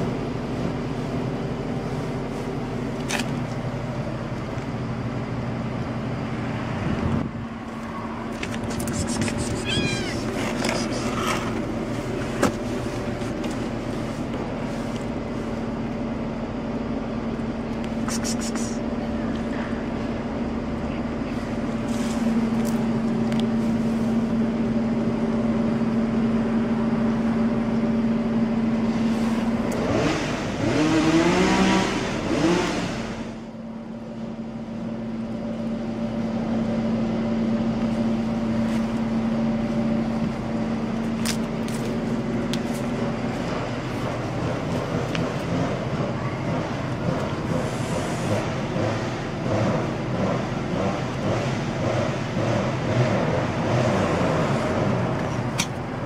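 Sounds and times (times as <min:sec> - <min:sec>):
vehicle engine humming: 0:00.0 - 0:56.0
vehicle passing and revving: 0:29.7 - 0:33.3, 0:43.5 - 0:55.2.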